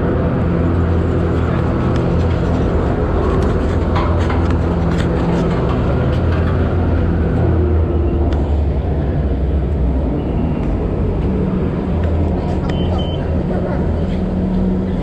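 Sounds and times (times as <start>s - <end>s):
chairlift machinery humming: 0.0s - 15.0s.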